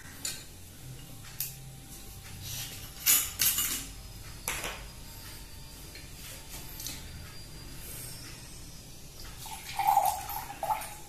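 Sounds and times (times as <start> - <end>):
glass bottles clinking: 9.4 - 11.0.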